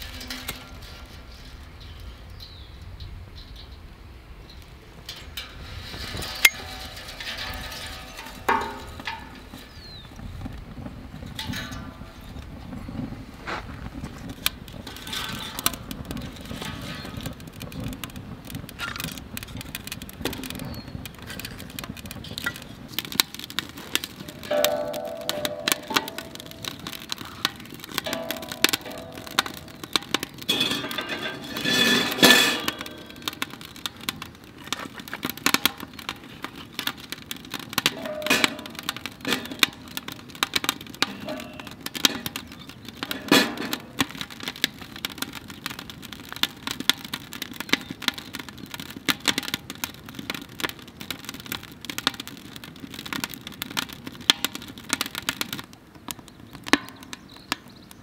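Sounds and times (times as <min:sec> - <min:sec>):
wood fire crackling and popping: 0:00.0 - 0:58.0.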